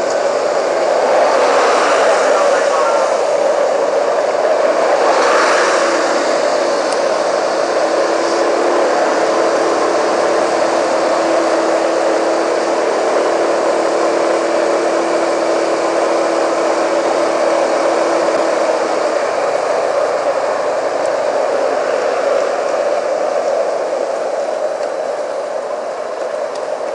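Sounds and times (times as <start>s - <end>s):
scooter engine humming: 0.0s - 26.9s
wind and road noise: 0.0s - 26.9s.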